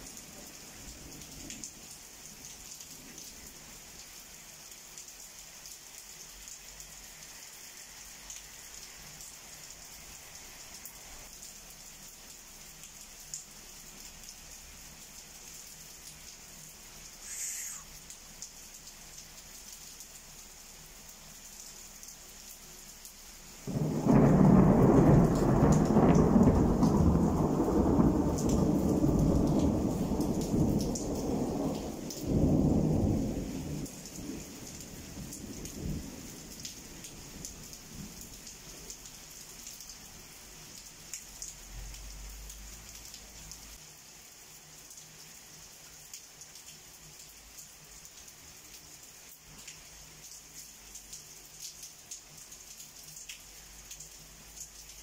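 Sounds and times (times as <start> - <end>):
steady rain: 0.0 - 55.0
thunder rumbling: 23.7 - 34.5.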